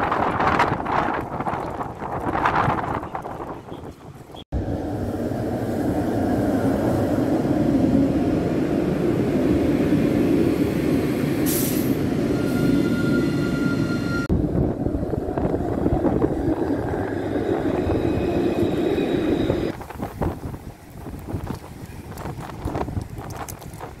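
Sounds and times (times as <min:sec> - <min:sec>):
tram wheels rumbling on rails: 0:00.0 - 0:24.0.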